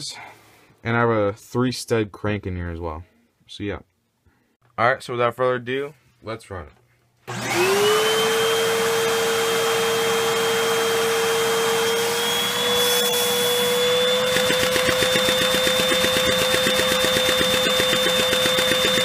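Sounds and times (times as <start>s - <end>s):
vacuum cleaner whining: 7.3s - 19.0s
fast even mechanical pulsing: 14.1s - 19.0s.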